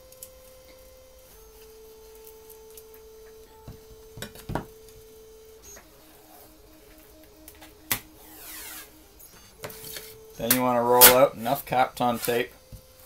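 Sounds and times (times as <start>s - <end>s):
soft background music: 0.0s - 13.0s
knocks on a desk: 3.6s - 4.8s.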